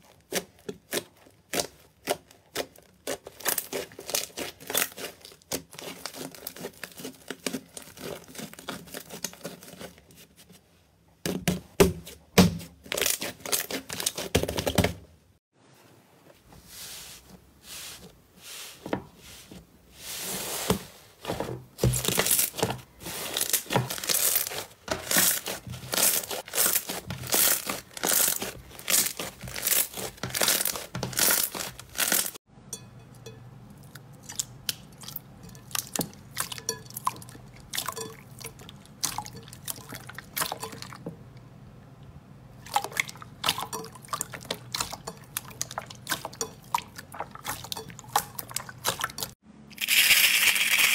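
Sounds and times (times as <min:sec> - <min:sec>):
slime squishing: 0:00.0 - 0:10.5, 0:20.1 - 0:32.4, 0:33.8 - 0:41.1, 0:42.6 - 0:49.4
slime crust crackling: 0:22.1 - 0:32.4.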